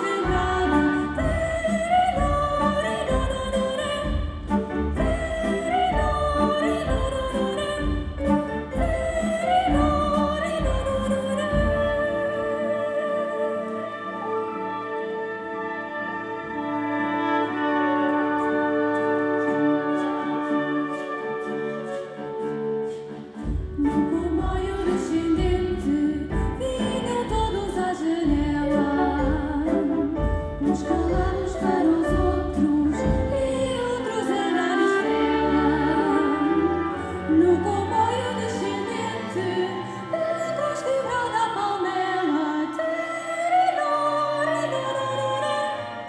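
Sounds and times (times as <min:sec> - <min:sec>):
timpani: 0:00.0 - 0:40.1
strings: 0:00.0 - 0:46.0
people singing: 0:27.7 - 0:46.0.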